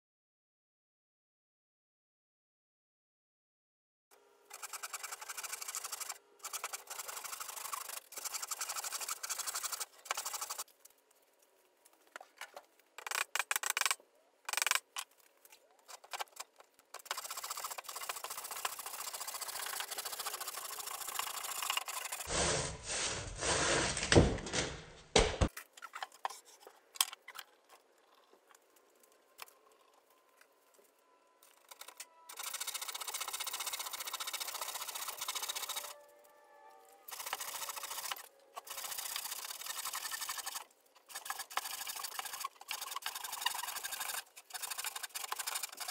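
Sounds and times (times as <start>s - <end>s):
hand saw cutting wood: 4.5s - 10.6s, 17.0s - 24.2s, 37.1s - 45.9s.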